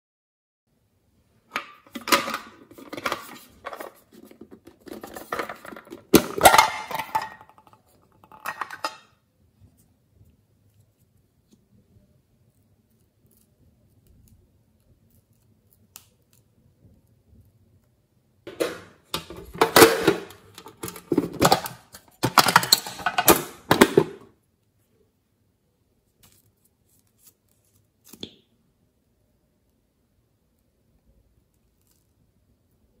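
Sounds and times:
metal tin scraping and rattling: 0:01.6 - 0:09.1, 0:18.5 - 0:24.2.

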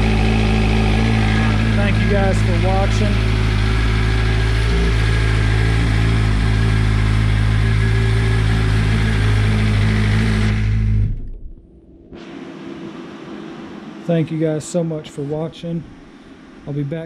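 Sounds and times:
motorcycle engine idling: 0:00.0 - 0:10.4.

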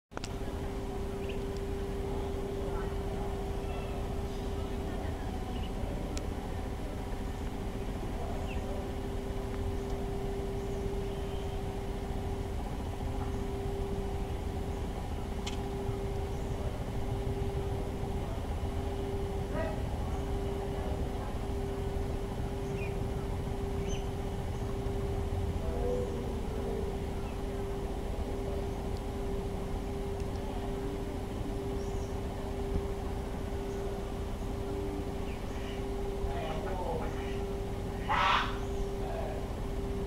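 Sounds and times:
low rumble with mechanical hum: 0:00.1 - 0:40.0
faint high chirps: 0:00.3 - 0:06.2, 0:07.0 - 0:40.0
click: 0:15.4 - 0:15.6.

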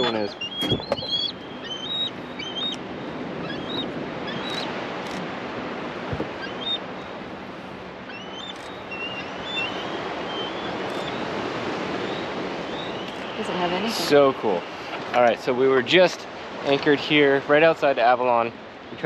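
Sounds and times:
eagles chirping: 0:00.0 - 0:05.2, 0:06.3 - 0:06.9, 0:08.0 - 0:15.1
surf: 0:00.0 - 0:19.0
wind: 0:00.0 - 0:19.0.

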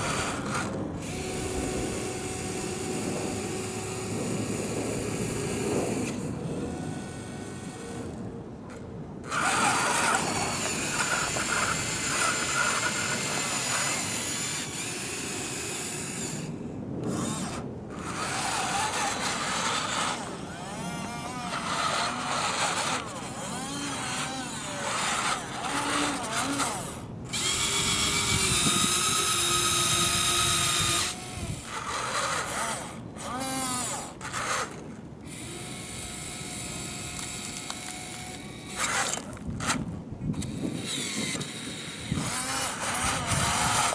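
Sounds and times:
small electric motors whining: 0:00.0 - 0:43.9
gravel scraping and crunching: 0:28.4 - 0:43.9.

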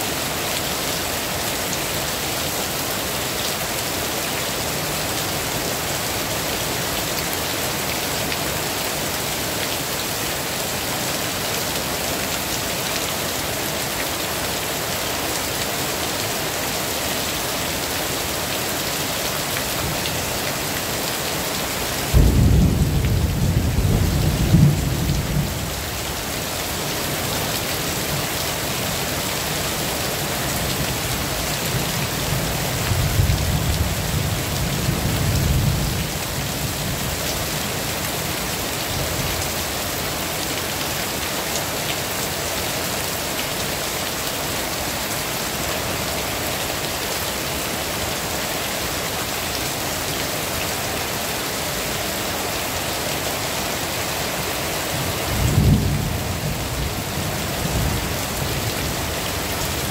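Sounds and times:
heavy rain: 0:00.0 - 0:59.9
thunder rumbling: 0:22.1 - 0:25.6.

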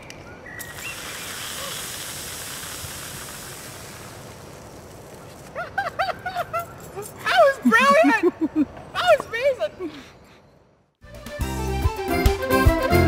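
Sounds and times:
fizzing cola spraying: 0:00.6 - 0:05.3.

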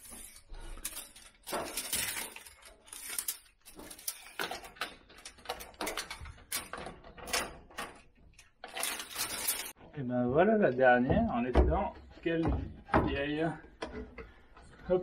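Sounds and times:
tape measure clicking and rattling: 0:00.0 - 0:07.5.

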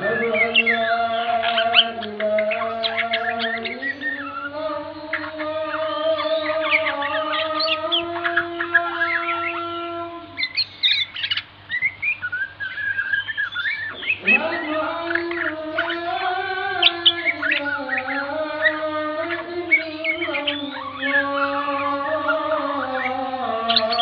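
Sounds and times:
wavering low tone with overtones: 0:00.0 - 0:11.0
songbird chirps and whistled song: 0:00.0 - 0:24.0.

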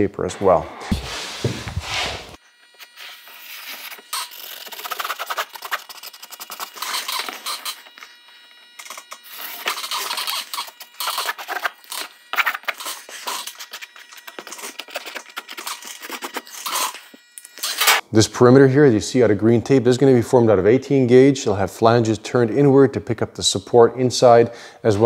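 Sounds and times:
felt marker scratching on paper: 0:00.9 - 0:07.8
paper and tape rustling: 0:03.0 - 0:08.0, 0:08.8 - 0:17.0.

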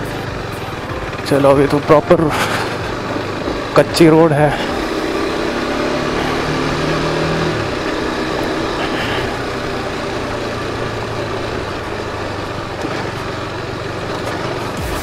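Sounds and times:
motorcycle engine running: 0:00.0 - 0:15.0.

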